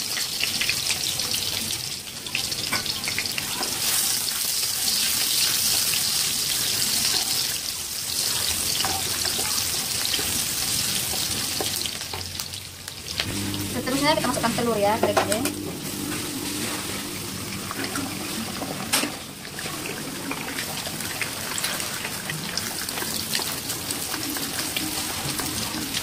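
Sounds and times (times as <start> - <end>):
shallots sizzling in hot oil: 0.0 - 19.5, 20.4 - 26.0
spatula stirring in pan: 2.7 - 12.2.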